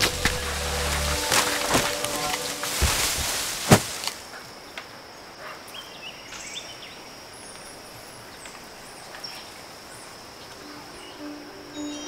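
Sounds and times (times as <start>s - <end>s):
steady high tone: 0.0s - 3.3s, 10.5s - 12.0s
heavy thud of animal falling: 1.2s - 4.2s.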